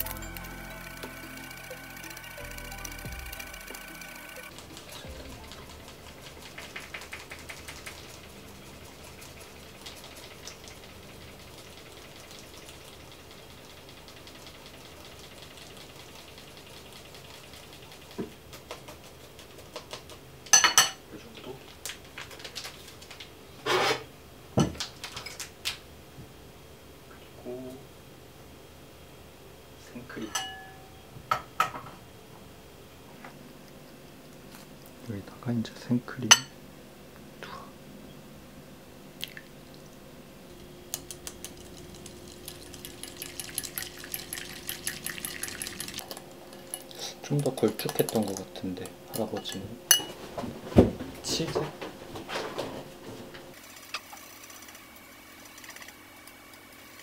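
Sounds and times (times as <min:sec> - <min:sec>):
utensils clinking on cookware: 0:20.5 - 0:21.0, 0:30.2 - 0:30.9, 0:49.1 - 0:50.2
utensil clinking bowl: 0:30.3 - 0:30.9, 0:41.4 - 0:50.2.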